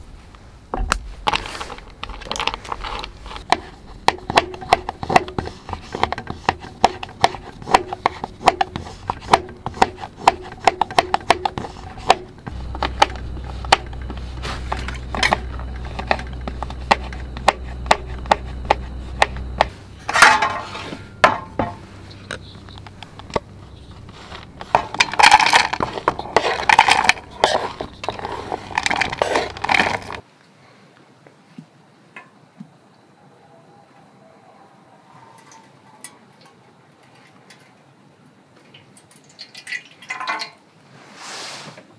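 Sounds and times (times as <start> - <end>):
low steady hum: 0.0 - 30.2
knife chopping chocolate on board: 3.5 - 19.7.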